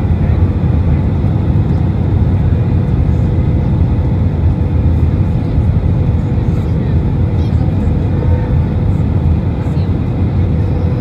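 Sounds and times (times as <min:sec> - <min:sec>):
aircraft cabin rumble: 0:00.0 - 0:11.0.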